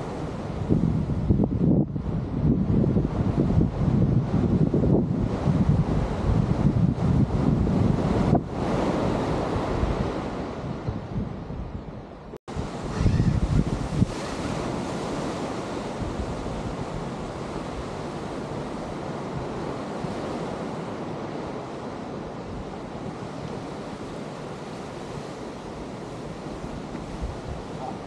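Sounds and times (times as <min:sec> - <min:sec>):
ocean surf washing: 0:00.0 - 0:28.0
wind buffeting microphone: 0:00.0 - 0:28.0.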